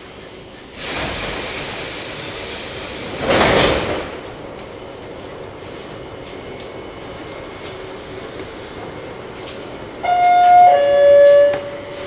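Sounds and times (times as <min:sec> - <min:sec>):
train doors sliding open: 0:00.6 - 0:12.0
pneumatic hiss of air: 0:00.7 - 0:03.2.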